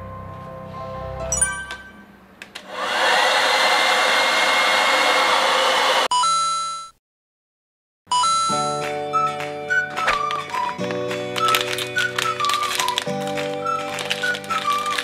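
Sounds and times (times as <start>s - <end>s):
hair dryer blowing: 2.6s - 6.1s.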